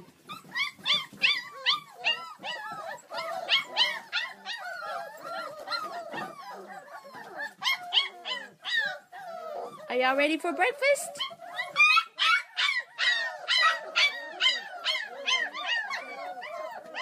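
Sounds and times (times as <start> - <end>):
puppies whining and yelping: 0.0 - 17.0.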